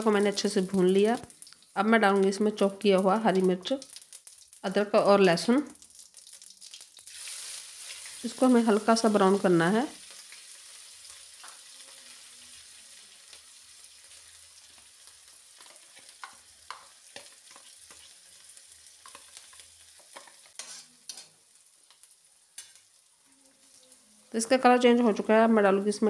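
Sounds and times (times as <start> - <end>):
food sizzling in oil: 0.0 - 26.0
stirring clicks in pan: 15.6 - 18.1.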